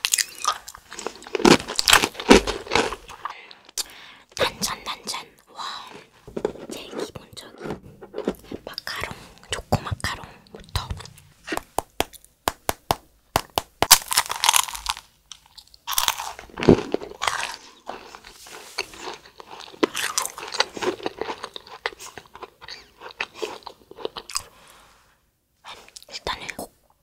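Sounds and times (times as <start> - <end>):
crunchy snack crunching: 0.0 - 3.9, 13.4 - 24.6
chewing: 14.6 - 24.6.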